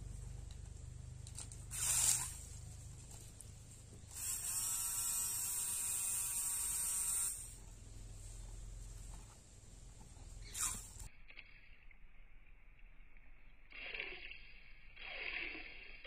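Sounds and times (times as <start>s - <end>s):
small motor buzzing whine: 1.4s - 3.4s, 4.0s - 7.6s.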